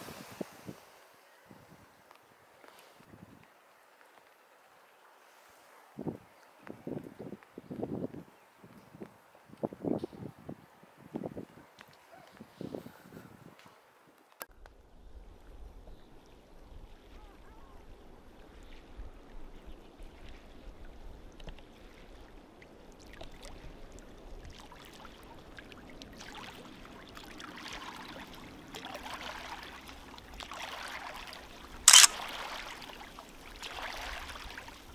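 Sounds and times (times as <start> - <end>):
small waves lapping: 16.2 - 34.9
sharp click: 31.9 - 32.2.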